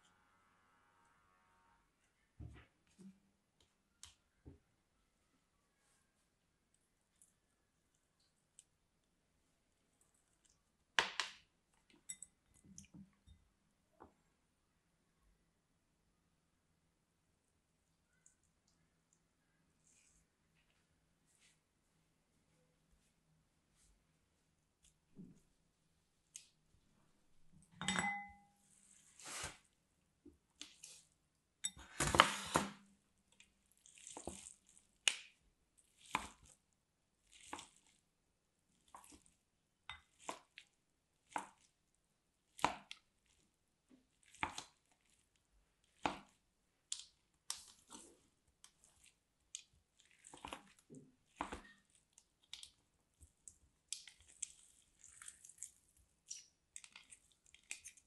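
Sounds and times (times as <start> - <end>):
wet crunchy gel squelches: 33.2 - 38.1, 40.0 - 58.0.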